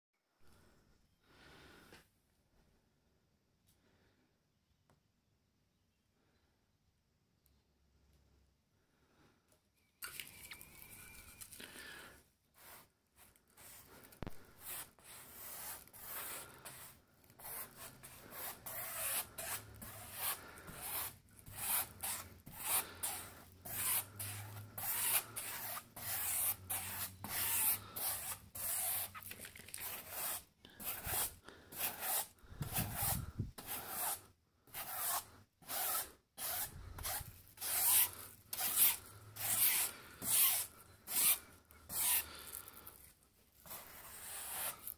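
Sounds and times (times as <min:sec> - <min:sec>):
brush swishing on canvas: 0:12.6 - 0:34.2.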